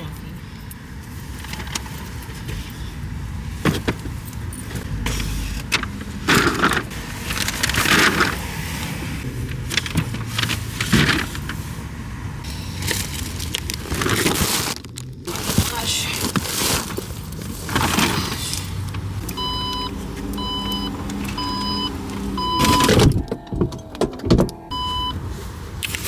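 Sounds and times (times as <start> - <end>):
paper bags rustling: 4.9 - 8.8, 12.5 - 18.9.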